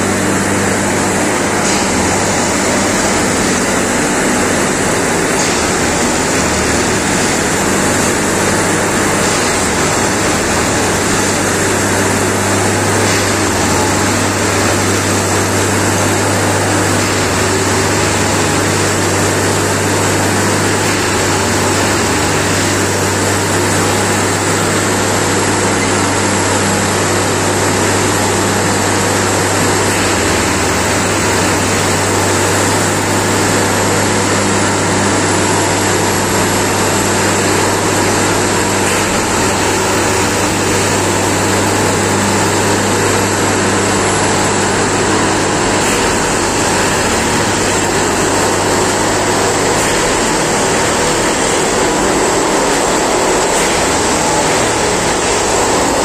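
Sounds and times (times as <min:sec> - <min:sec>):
diesel engine running: 0:00.0 - 0:56.0
mechanical hiss: 0:44.6 - 0:56.0.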